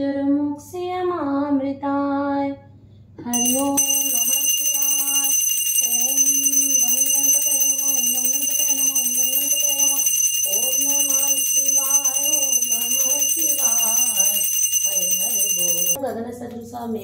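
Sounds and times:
hand bell ringing: 3.4s - 16.0s.

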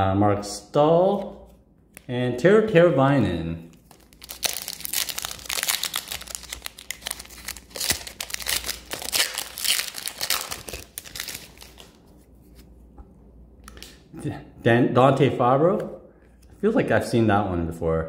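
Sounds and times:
foil wrapper tearing and crinkling: 3.8s - 12.0s.

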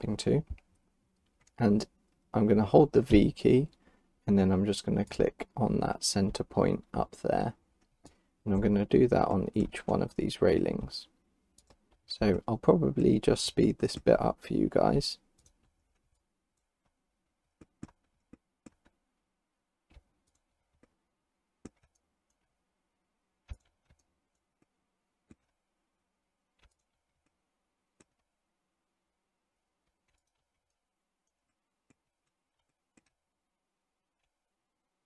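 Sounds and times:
computer mouse clicking: 11.5s - 12.5s, 15.3s - 17.0s, 17.6s - 19.0s, 19.8s - 21.0s, 21.6s - 22.6s, 23.4s - 25.6s, 26.5s - 27.4s, 28.0s - 28.3s, 29.8s - 33.2s.

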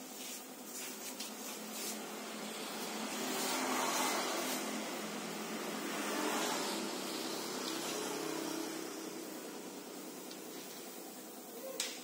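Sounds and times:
steady hiss: 0.0s - 12.0s
turntable motor hum: 1.6s - 11.5s.

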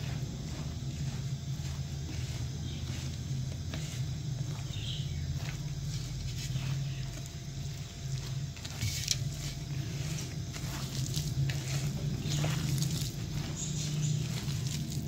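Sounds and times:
steady low hum: 0.0s - 15.0s
hand squelching wet batter: 5.3s - 15.0s.

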